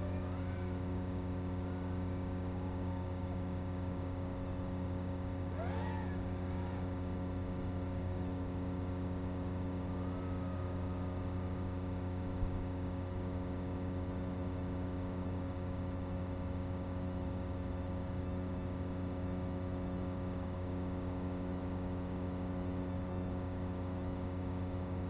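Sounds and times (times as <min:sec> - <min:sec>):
steady electrical buzz: 0:00.0 - 0:25.0
gliding call: 0:05.6 - 0:07.0.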